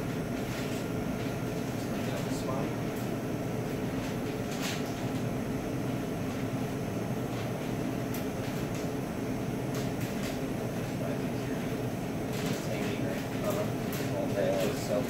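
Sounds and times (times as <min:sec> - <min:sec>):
fan humming: 0:00.0 - 0:15.0.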